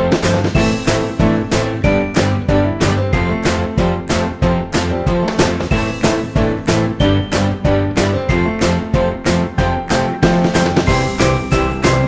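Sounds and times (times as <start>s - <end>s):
bouncy background music: 0.0s - 12.0s.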